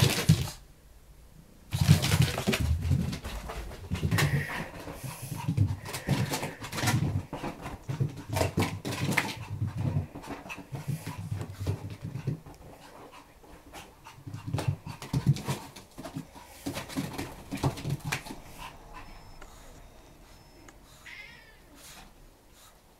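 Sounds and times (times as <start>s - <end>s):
small dog whimpering and panting: 18.4s - 22.8s.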